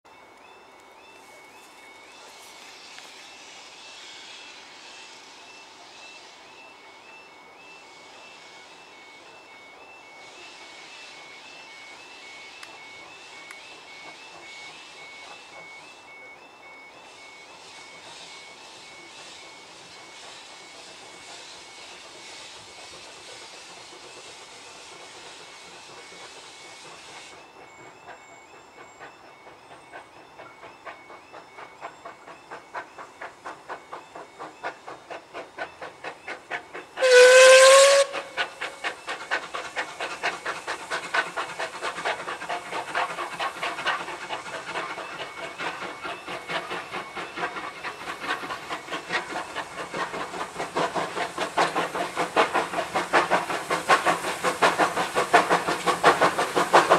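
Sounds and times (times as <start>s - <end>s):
steam locomotive chuffing: 0.1s - 56.9s
steam locomotive hissing: 0.1s - 56.9s
steam whistle blast: 37.0s - 38.9s.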